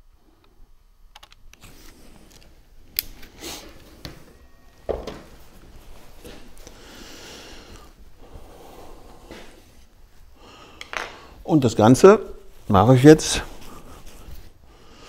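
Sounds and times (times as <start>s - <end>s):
cloth rubbing over hands: 5.2s - 6.7s, 12.3s - 14.7s.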